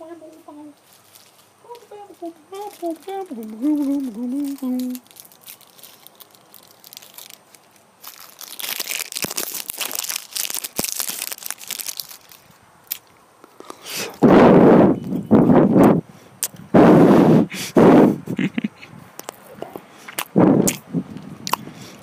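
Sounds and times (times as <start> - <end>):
crinkling handling noise: 0.2 - 14.2.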